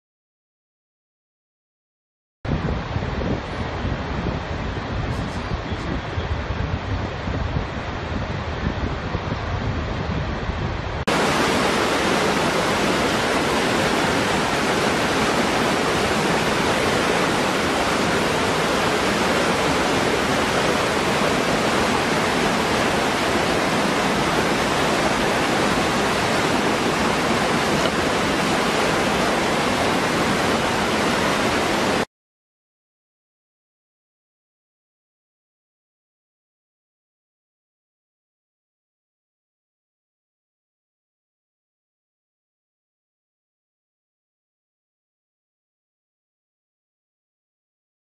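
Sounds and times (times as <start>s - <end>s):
waterfall pouring into pool: 11.1s - 32.1s.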